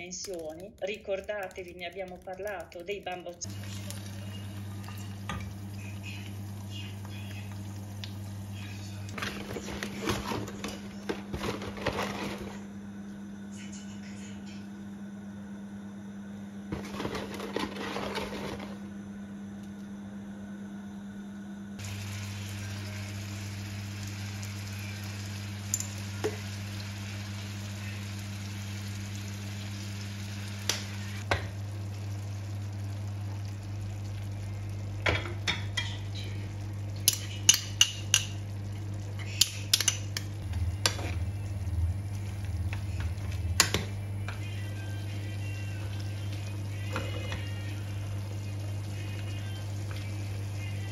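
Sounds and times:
utensils clicking against pan: 0.0s - 3.4s, 37.0s - 38.4s, 39.2s - 41.0s
food sizzling in oil: 3.4s - 9.0s, 21.8s - 44.1s
low hum: 38.2s - 50.9s.

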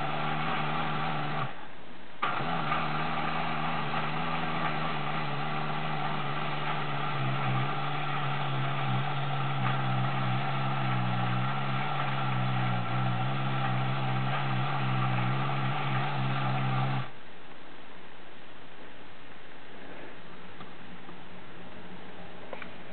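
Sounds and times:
clockwork toy motor whirring: 2.3s - 17.1s.

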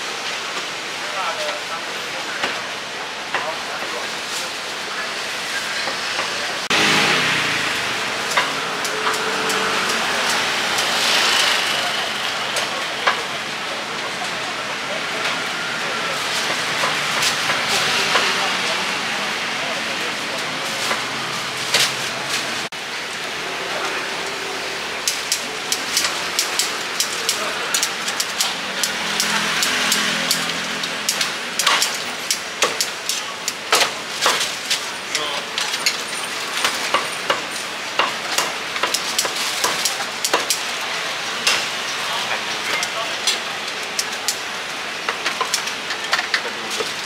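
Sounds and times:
utensils knocking and clinking: 25.0s - 34.5s.

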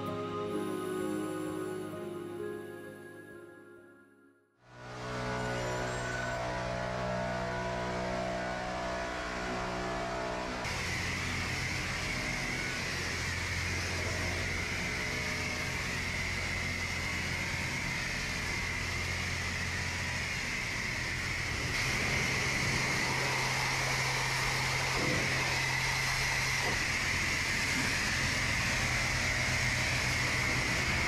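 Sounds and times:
background music: 0.0s - 4.5s
pressure washer spraying water: 10.7s - 31.0s.

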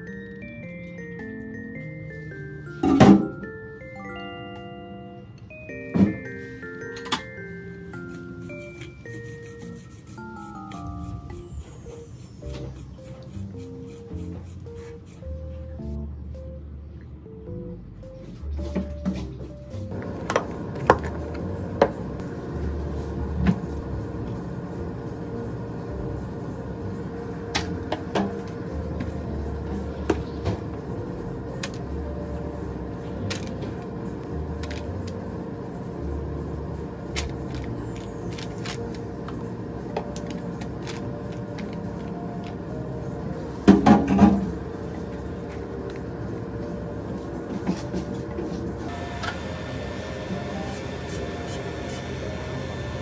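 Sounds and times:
steady low hum: 19.6s - 53.0s.

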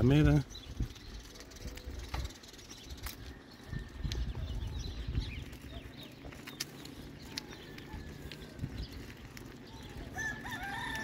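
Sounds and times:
small birds chirping: 0.0s - 11.0s.

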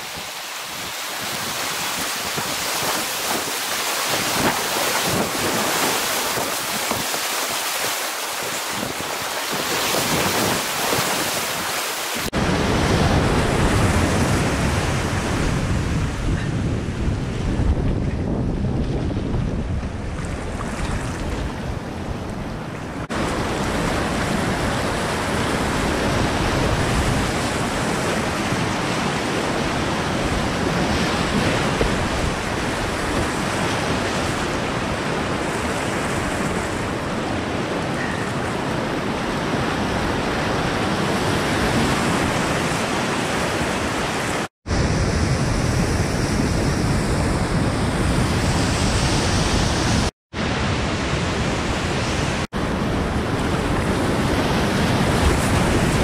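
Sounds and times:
whitewater rapids rushing: 0.0s - 15.3s.

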